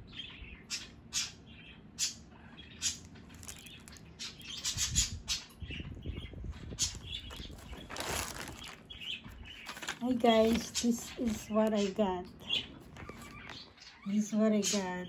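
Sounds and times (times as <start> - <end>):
bird chirping: 0.0 - 15.0
plastic mailer crinkling: 3.3 - 4.6, 6.8 - 11.9.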